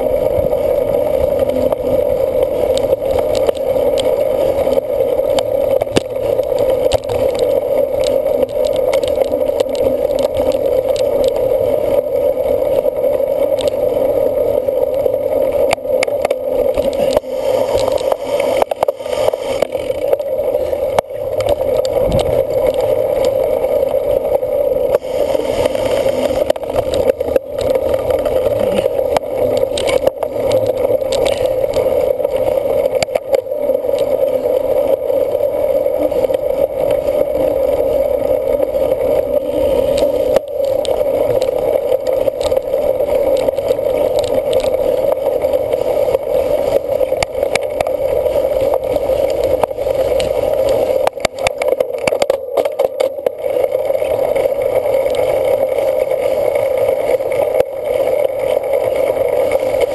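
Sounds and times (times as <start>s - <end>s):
bicycle tyre rumble: 0.0s - 59.9s
wind on microphone: 20.7s - 23.2s.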